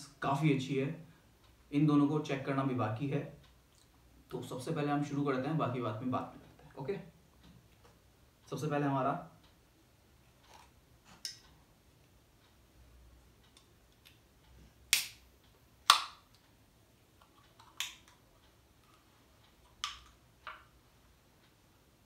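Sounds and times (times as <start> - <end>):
can pull tab clicks and snaps: 15.9 - 16.2.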